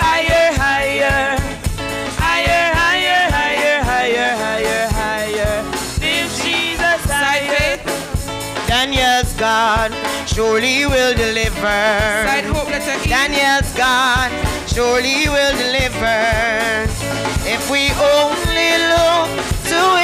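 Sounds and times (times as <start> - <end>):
gospel choir singing: 0.0 - 8.2
steady drum beat: 0.0 - 20.0.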